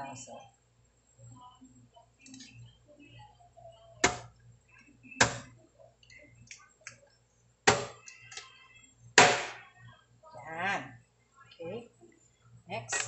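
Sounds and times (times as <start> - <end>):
cleaver chopping on cutting board: 4.0 - 4.2, 5.2 - 5.4, 7.7 - 8.0.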